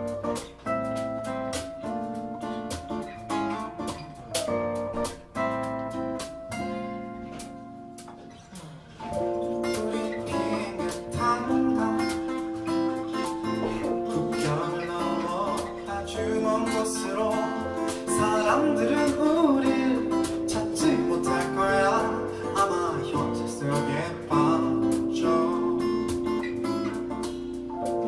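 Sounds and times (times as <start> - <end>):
strummed acoustic guitar: 0.0 - 28.0
man singing: 9.6 - 26.7.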